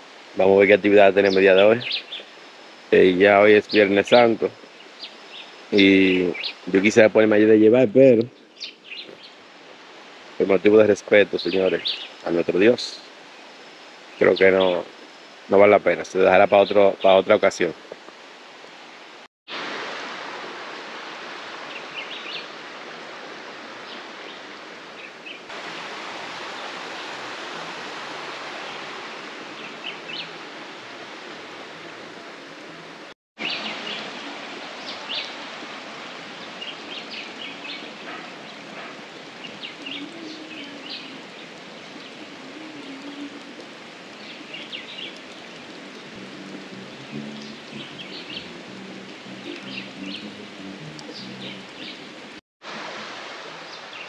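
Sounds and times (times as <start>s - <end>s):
steady rushing hiss: 0.0s - 54.0s
birds chirping: 0.4s - 9.4s, 10.4s - 13.4s, 14.1s - 17.8s, 28.4s - 30.5s, 31.8s - 52.4s.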